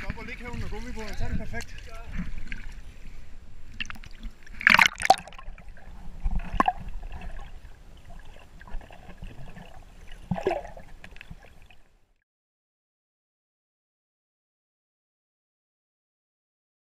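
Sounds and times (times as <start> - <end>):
muffled underwater rumble: 5.3 - 11.8.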